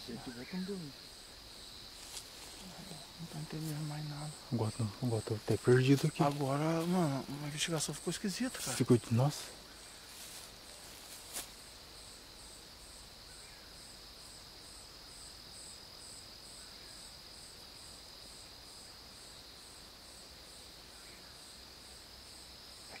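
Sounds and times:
insect high trill: 0.0 - 14.0
insect chirping: 0.0 - 23.0.

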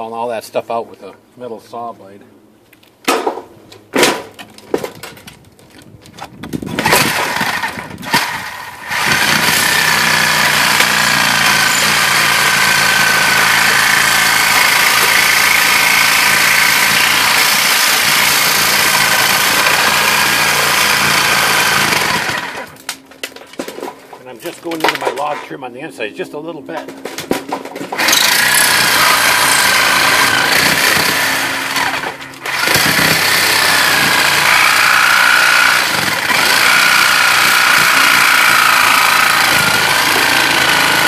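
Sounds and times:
reciprocating saw cutting metal: 6.8 - 22.8, 28.0 - 41.0.

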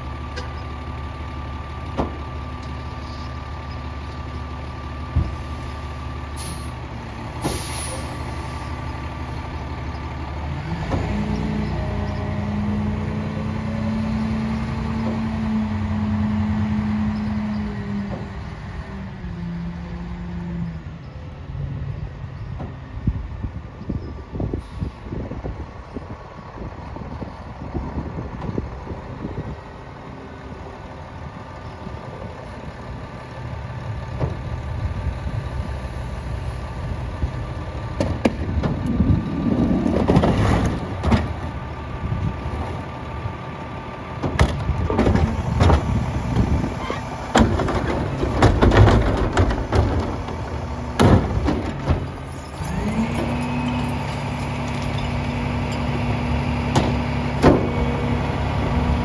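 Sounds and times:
diesel engine idling: 0.0 - 40.1, 40.8 - 59.0
plastic cart banging: 47.4 - 50.3.

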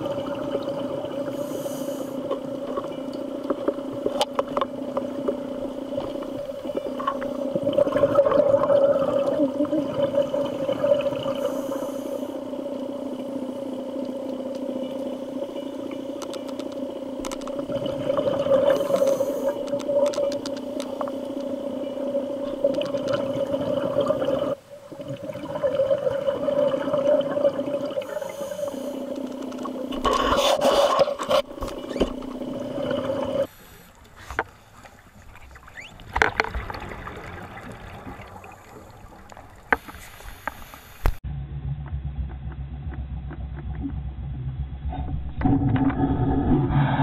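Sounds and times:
underwater low hum: 0.0 - 47.0
bubbling underwater: 6.1 - 11.4, 17.5 - 19.0, 22.1 - 28.1
underwater clicks: 16.1 - 21.6, 22.5 - 23.4, 29.1 - 30.3.

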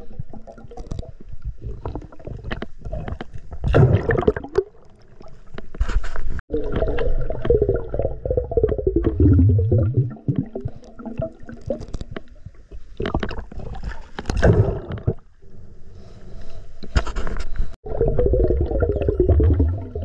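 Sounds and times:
gush of bubbles: 3.7 - 5.0, 6.5 - 11.6, 17.9 - 20.0
underwater gurgling and bubbling: 6.5 - 12.1, 17.8 - 20.0.

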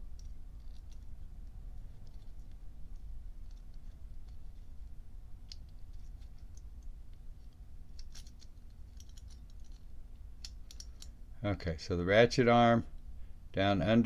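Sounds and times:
small metal parts clicking: 0.0 - 11.2
low steady hum: 0.0 - 14.0.

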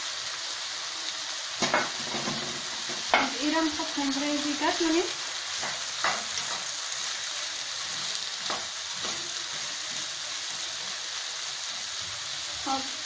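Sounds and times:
vegetables sizzling in a wok: 0.0 - 13.0
spoon scraping a pan: 7.8 - 11.1.

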